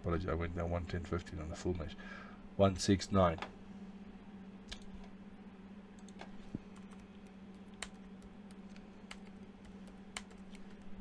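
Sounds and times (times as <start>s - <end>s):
steady low hum: 0.0s - 11.0s
computer keyboard clicks: 6.0s - 10.9s.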